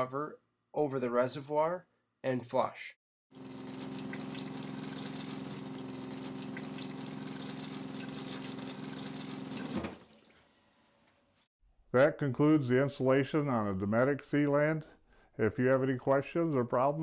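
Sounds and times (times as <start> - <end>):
toilet flushing: 3.3 - 10.7.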